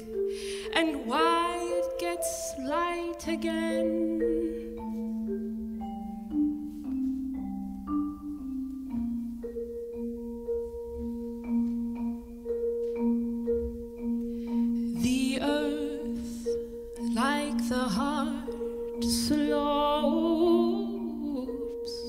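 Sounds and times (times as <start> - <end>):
woman singing: 0.0 - 4.7, 14.9 - 22.0
vibraphone and marimba notes: 0.0 - 22.0.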